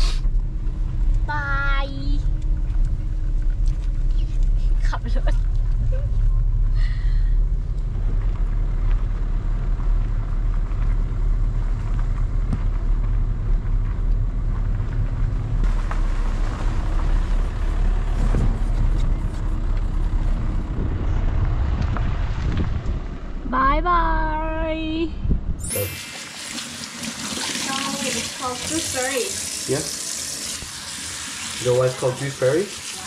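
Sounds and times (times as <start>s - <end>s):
tyre and road noise: 0.0s - 25.8s
car engine: 0.0s - 25.9s.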